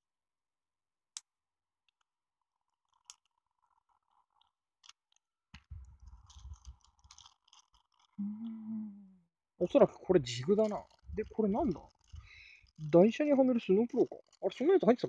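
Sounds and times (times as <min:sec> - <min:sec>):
plastic bag crinkling: 0:05.6 - 0:08.2, 0:10.2 - 0:15.0.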